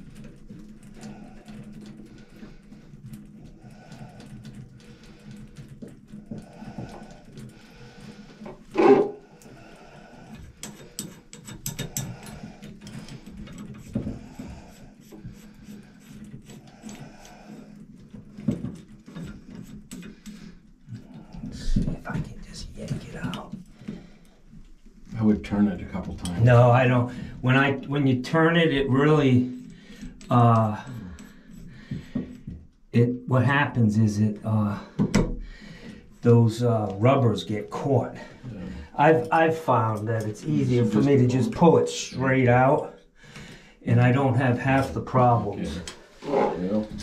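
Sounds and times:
metal clicks and scraping: 0:00.0 - 0:24.8.

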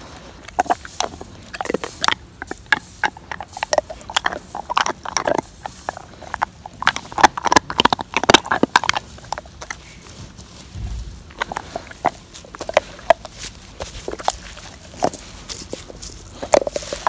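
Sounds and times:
dog chewing grass: 0:00.0 - 0:17.0.

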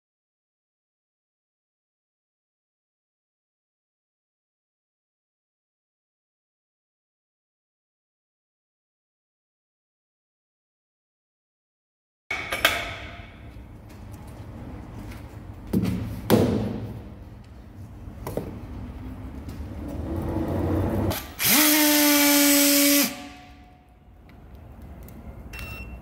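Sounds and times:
strapping tool motor whirring: 0:21.1 - 0:23.1.

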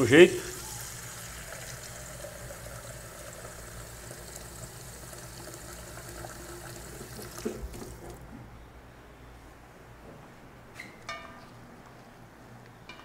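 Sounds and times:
tap water filling a bowl: 0:00.4 - 0:08.3.

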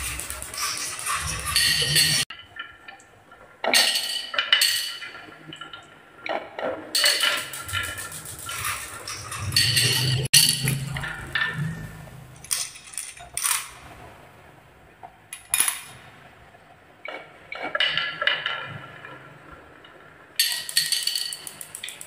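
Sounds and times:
marbles rattling down wooden run: 0:00.0 - 0:02.3, 0:07.0 - 0:11.0, 0:20.4 - 0:22.0.

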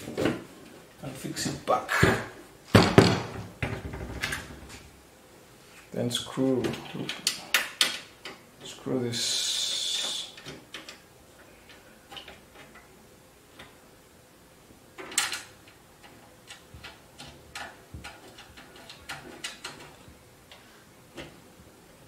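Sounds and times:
loud knock: 0:02.8 - 0:04.2.

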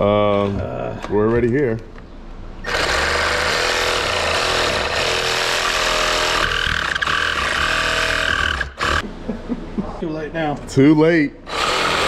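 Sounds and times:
jigsaw cutting plastic: 0:02.6 - 0:09.0, 0:11.5 - 0:12.0.

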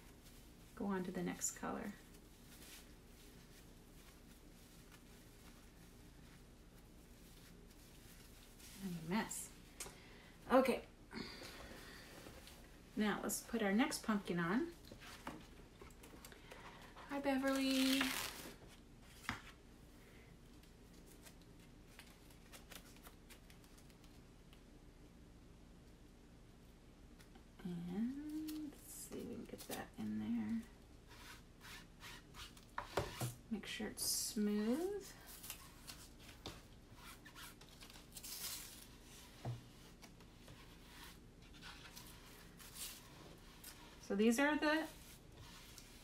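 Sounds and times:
faint clicks and rustles of stencil: 0:20.4 - 0:24.7, 0:35.0 - 0:44.1, 0:44.8 - 0:46.0.

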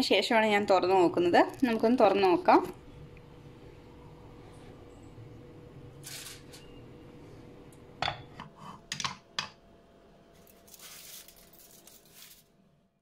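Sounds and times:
aluminium foil crinkling: 0:06.0 - 0:06.6, 0:10.3 - 0:12.6
pot lid knocking and clinking: 0:08.0 - 0:09.5.

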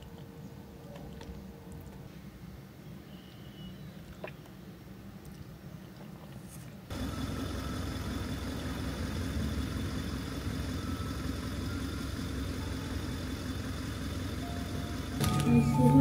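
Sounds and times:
low mechanical rumble: 0:00.0 - 0:16.0
faint high whine: 0:06.9 - 0:16.0.

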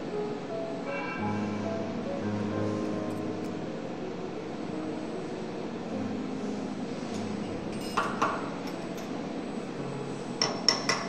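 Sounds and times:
workshop hum: 0:00.0 - 0:11.0
metal pins clinking on table: 0:07.7 - 0:09.2.

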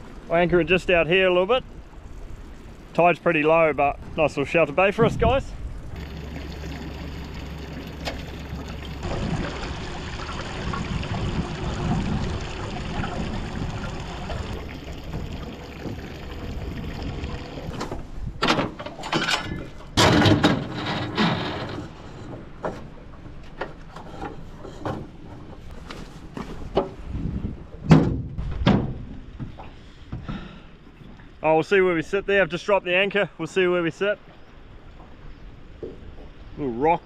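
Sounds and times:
water lapping against hull: 0:00.0 - 0:18.4
knocks and clatter on boat deck: 0:11.5 - 0:30.4, 0:35.8 - 0:36.4.

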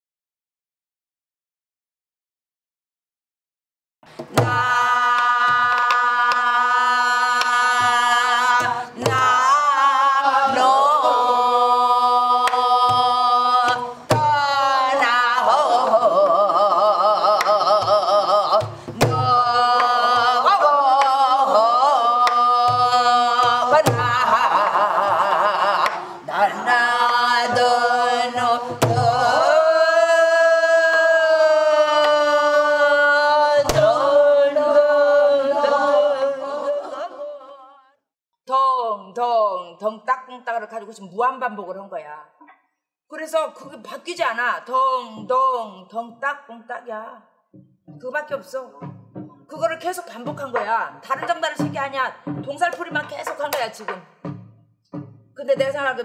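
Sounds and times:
wordless vocal melody with vibrato: 0:04.1 - 0:39.7
drum strokes: 0:04.2 - 0:32.8, 0:33.6 - 0:34.8, 0:47.5 - 0:56.0.

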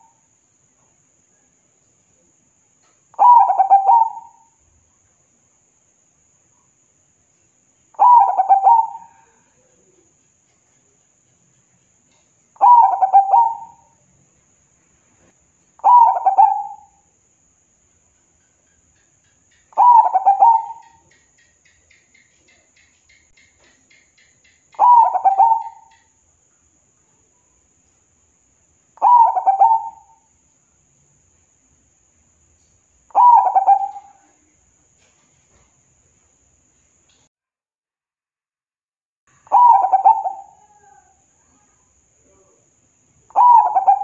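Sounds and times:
dove cooing: 0:03.2 - 0:04.4, 0:08.0 - 0:10.0, 0:12.6 - 0:13.9, 0:15.8 - 0:17.0, 0:19.7 - 0:21.1, 0:24.8 - 0:26.1, 0:29.0 - 0:30.2, 0:33.1 - 0:34.4, 0:39.5 - 0:41.1, 0:43.3 - 0:44.0.

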